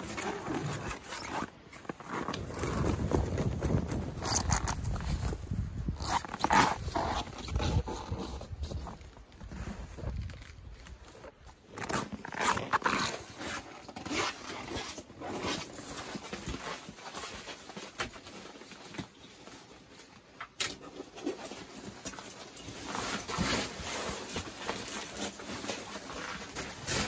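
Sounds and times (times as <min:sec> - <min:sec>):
backpack shifted: 0:00.0 - 0:18.2.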